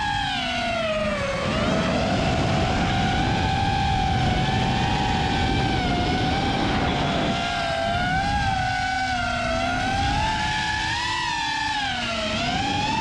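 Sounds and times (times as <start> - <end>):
drone propellers whining: 0.0 - 13.0.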